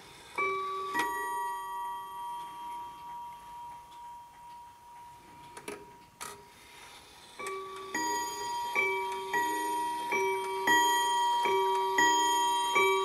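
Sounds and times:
clock gong chime: 0.4s - 5.6s, 7.4s - 13.0s
clock hands clicking: 2.3s - 6.2s, 7.4s - 13.0s.

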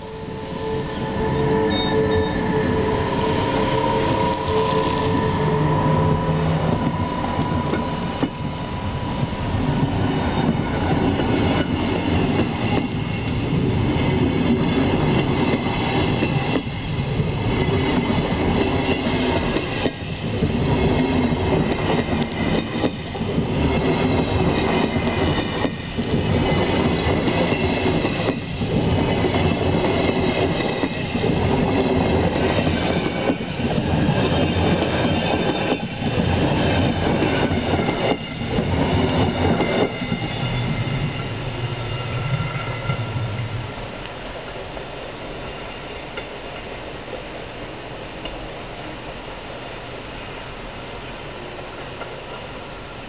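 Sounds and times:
high-pitched wheel squeal: 0.0s - 10.6s
train wheels rumbling and clattering: 0.7s - 46.8s.

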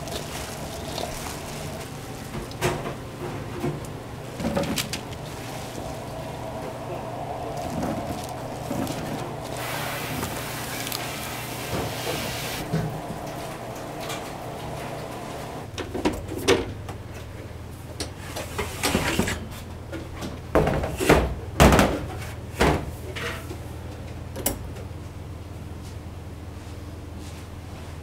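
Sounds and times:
trays clattering against racks: 0.0s - 16.7s.

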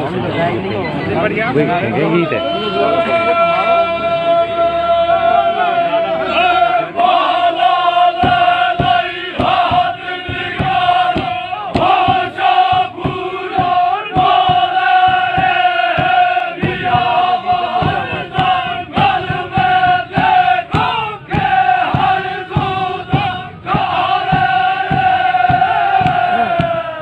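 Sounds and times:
group of men singing and chanting: 1.9s - 27.0s
drum strokes: 7.1s - 27.0s.

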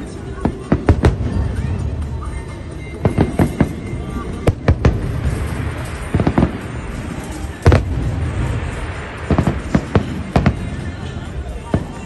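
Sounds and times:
fireworks bursting: 0.0s - 12.0s.

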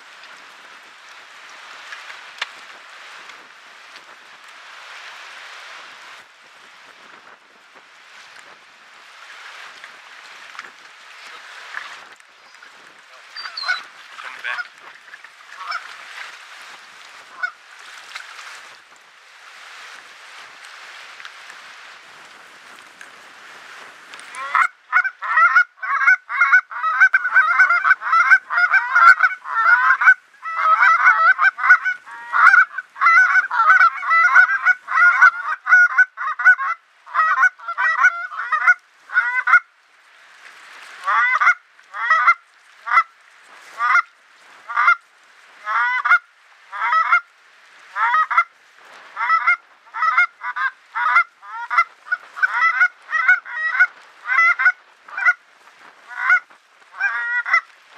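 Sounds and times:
goose call honks and clucks: 13.2s - 14.9s, 15.5s - 16.0s, 17.3s - 17.6s, 24.3s - 39.7s, 41.0s - 43.1s, 43.8s - 45.0s, 45.6s - 47.3s, 48.0s - 48.5s, 49.2s - 55.4s, 56.1s - 57.7s.

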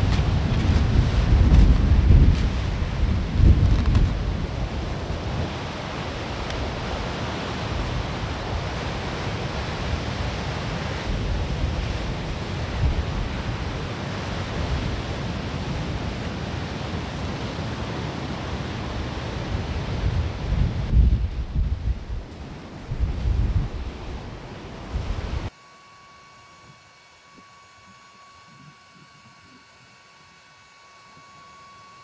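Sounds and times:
surf breaking on rocky beach: 0.0s - 25.5s
wind gusting on microphone: 0.0s - 25.5s.

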